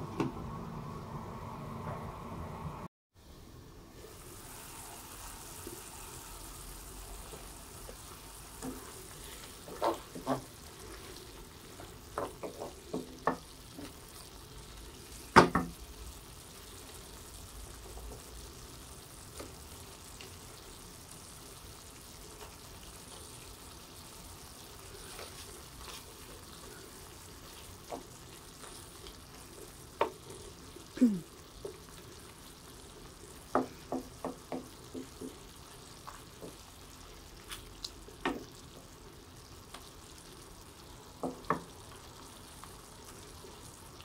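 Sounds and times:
sauce sizzling in a pan: 0:03.2 - 0:44.0.

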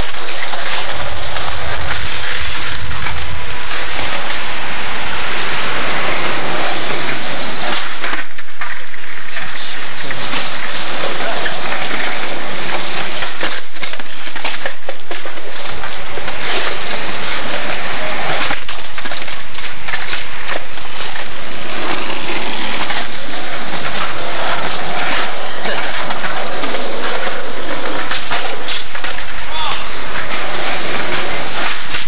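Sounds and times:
skateboard wheels rolling on concrete: 0:00.0 - 0:32.0.

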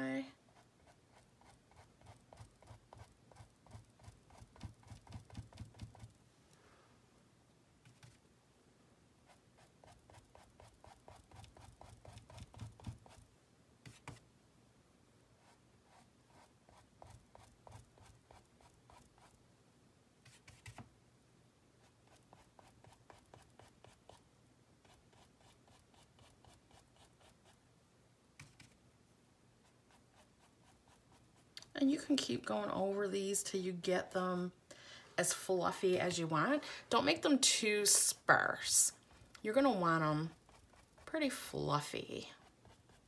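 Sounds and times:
brush flicking paint on canvas: 0:00.6 - 0:06.2, 0:09.3 - 0:14.2.

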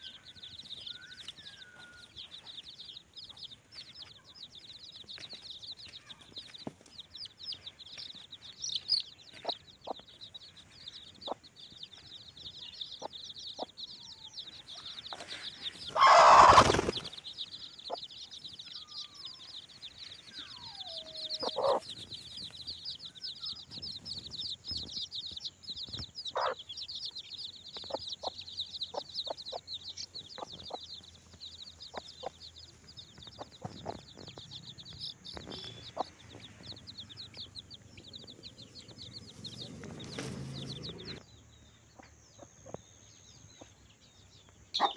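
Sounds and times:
chicks peeping: 0:00.0 - 0:41.3, 0:41.9 - 0:44.9
hen clucking: 0:14.7 - 0:17.1, 0:20.4 - 0:22.0, 0:26.3 - 0:26.8, 0:27.8 - 0:41.2
falling bird call: 0:15.1 - 0:17.2.

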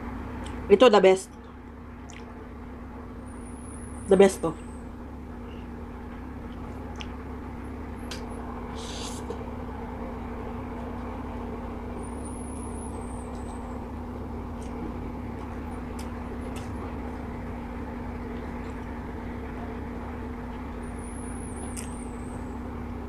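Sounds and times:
low droning hum: 0:00.0 - 0:23.0.

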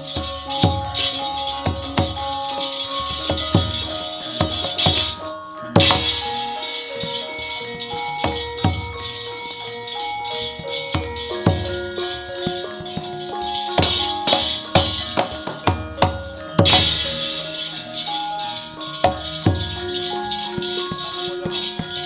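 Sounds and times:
metallic jangle of struck plates: 0:00.0 - 0:22.0
metallophone tones: 0:00.0 - 0:22.0.

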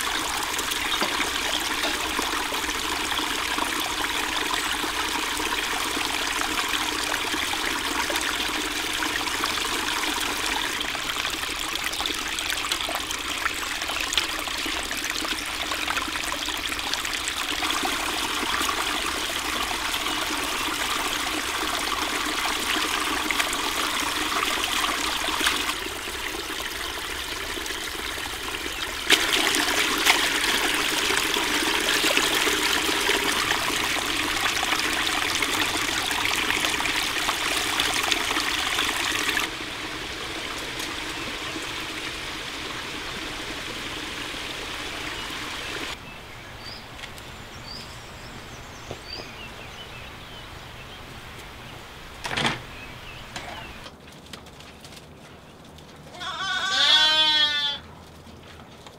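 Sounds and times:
greens rinsed in water basin: 0:00.0 - 0:46.0
stream splashing over rocks: 0:00.0 - 0:46.0.

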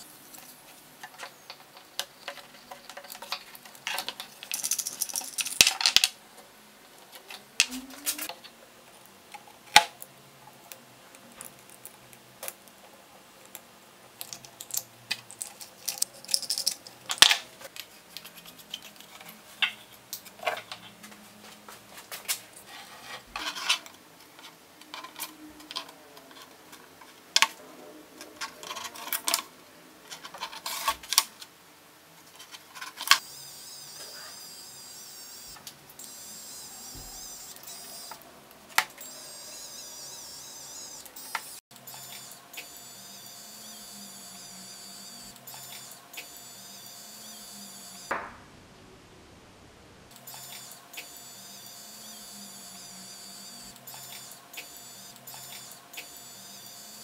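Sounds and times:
rattle of parts: 0:01.0 - 0:06.2, 0:14.6 - 0:19.8
small parts clicking on wood: 0:13.4 - 0:19.8.

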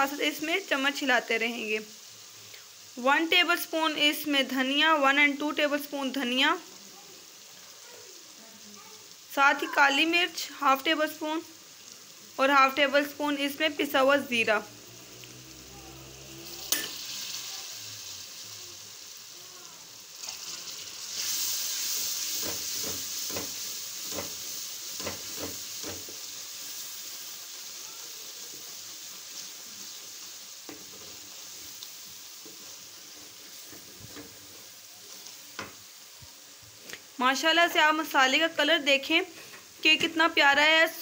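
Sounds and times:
masala sizzling in hot oil: 0:00.0 - 0:41.0
wooden spoon scraping a pan: 0:21.3 - 0:26.4, 0:30.6 - 0:35.8.

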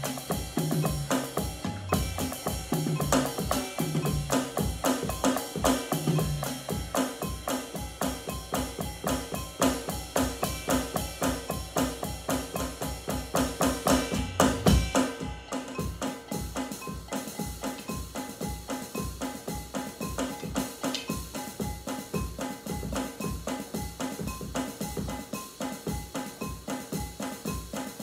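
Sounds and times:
drum kit played with sticks: 0:00.0 - 0:28.0.

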